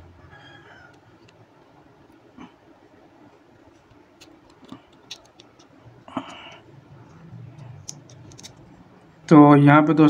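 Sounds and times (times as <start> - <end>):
plastic housing clicking: 3.8 - 5.7, 7.6 - 8.6.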